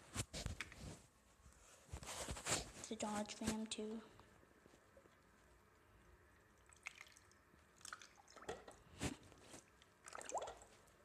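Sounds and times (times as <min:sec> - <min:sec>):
short water splashes: 0:06.6 - 0:08.9, 0:10.0 - 0:10.8
water sloshing in sink: 0:06.6 - 0:10.9.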